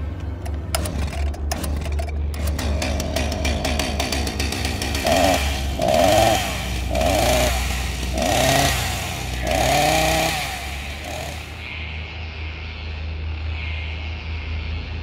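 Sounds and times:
steady low hum: 0.0 - 15.0
chainsaw revving: 2.4 - 11.6.

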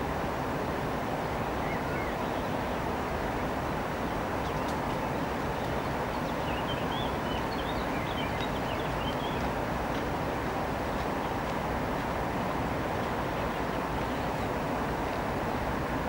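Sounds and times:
small birds chirping: 4.4 - 9.5.

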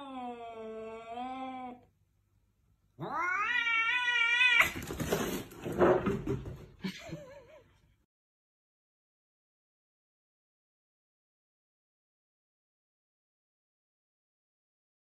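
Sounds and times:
cats yowling: 3.0 - 4.8.

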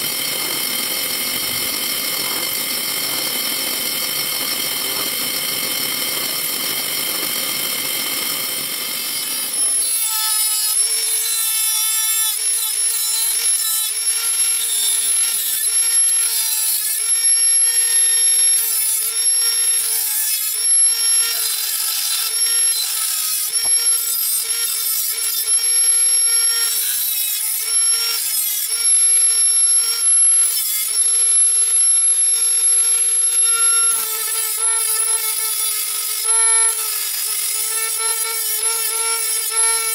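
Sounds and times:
drill press running: 0.0 - 10.1
rotary tool grinding metal: 0.0 - 39.9.

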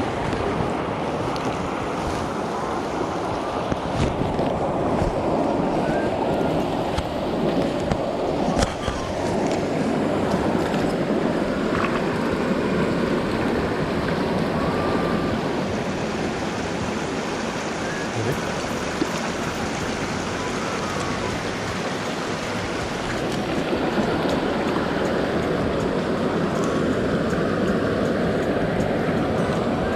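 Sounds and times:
stream rushing over rocks: 0.0 - 29.9.

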